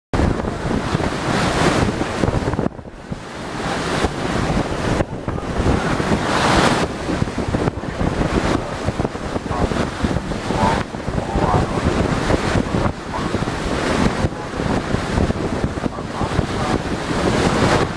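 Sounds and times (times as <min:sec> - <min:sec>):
wind buffeting microphone: 0:00.1 - 0:17.9.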